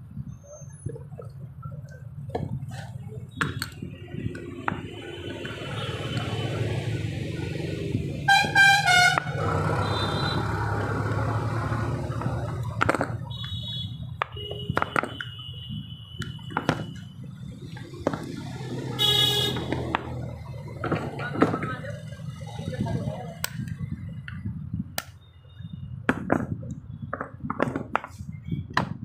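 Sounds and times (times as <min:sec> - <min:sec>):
vehicle horn: 0:08.3 - 0:10.6, 0:13.3 - 0:17.0, 0:19.0 - 0:19.7.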